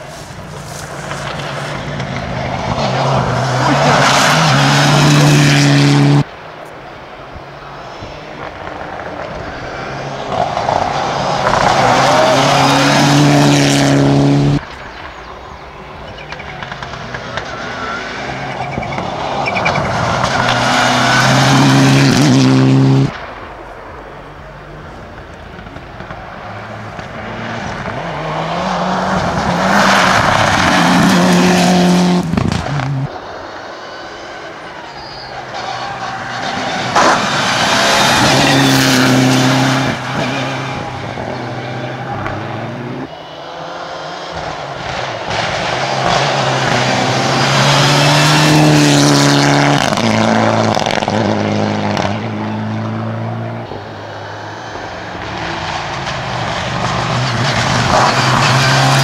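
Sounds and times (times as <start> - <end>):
rally car engines at full throttle: 0.0 - 59.0
sharp crack: 35.4 - 39.0.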